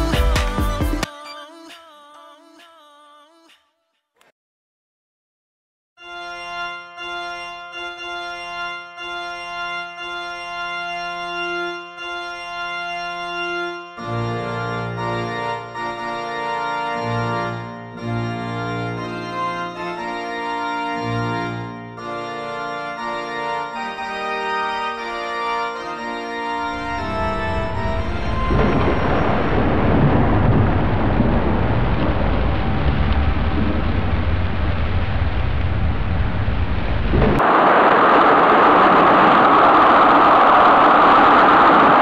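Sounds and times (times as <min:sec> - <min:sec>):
background music with bass line: 0:00.0 - 0:01.1
rushing noise: 0:26.7 - 0:42.0.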